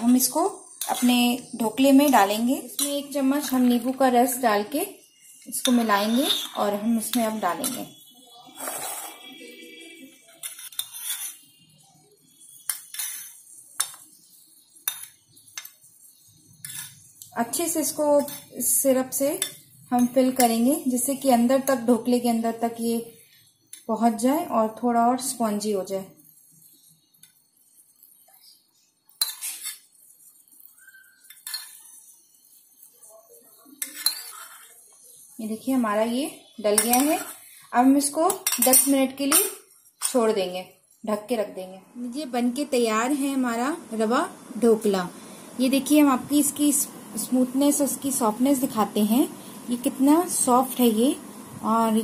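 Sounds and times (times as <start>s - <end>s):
spoon clinking on steel plate: 0.7s - 1.2s, 5.6s - 8.0s, 10.3s - 11.5s, 12.6s - 14.1s, 29.2s - 29.9s, 30.6s - 32.0s, 33.8s - 34.7s, 36.7s - 37.4s, 38.3s - 40.2s
spoon clinking against metal pan: 5.5s - 8.0s, 18.1s - 20.7s, 33.8s - 34.6s, 36.7s - 37.4s, 38.2s - 40.3s.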